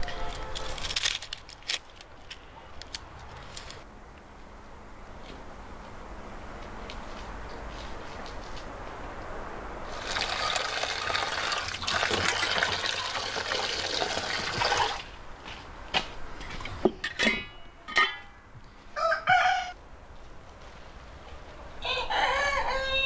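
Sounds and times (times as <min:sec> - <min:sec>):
running water rushing: 0:09.9 - 0:15.1
rooster crowing: 0:18.9 - 0:19.8, 0:21.8 - 0:23.0.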